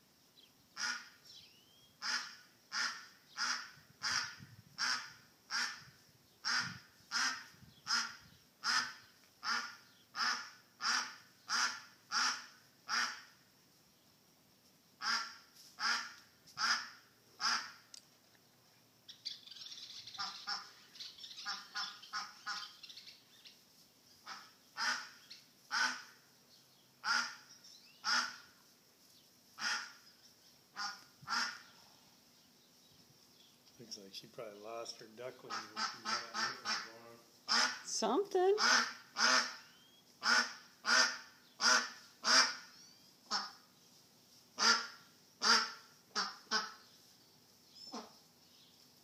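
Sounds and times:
duck quacking loudly: 0:00.8 - 0:01.2, 0:02.0 - 0:13.3, 0:15.0 - 0:17.8, 0:20.2 - 0:20.7, 0:24.2 - 0:26.2, 0:27.0 - 0:28.4, 0:29.6 - 0:30.0, 0:30.8 - 0:31.7, 0:35.4 - 0:37.8, 0:38.5 - 0:39.6, 0:40.2 - 0:42.7, 0:43.3 - 0:43.6, 0:44.6 - 0:46.8.

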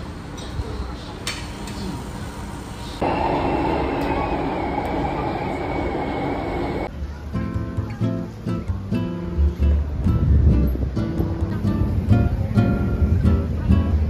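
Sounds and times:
metro train rumble: 0:00.0 - 0:06.9
thin high whine: 0:03.0 - 0:06.9
guitar music: 0:07.3 - 0:14.0.

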